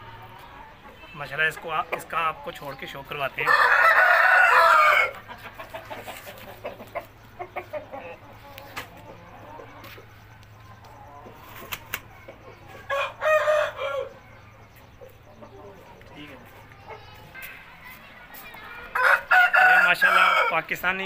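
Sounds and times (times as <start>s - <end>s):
chicken clucking: 0.0s - 21.0s
rooster crowing: 3.4s - 5.2s, 12.9s - 14.2s, 18.9s - 20.6s.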